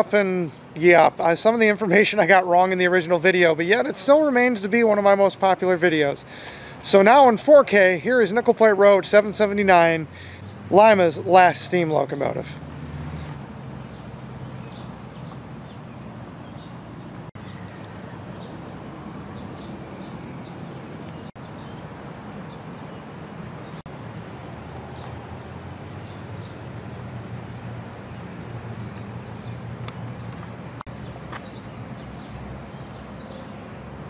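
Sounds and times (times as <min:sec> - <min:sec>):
small birds chirping: 0:12.2 - 0:34.0.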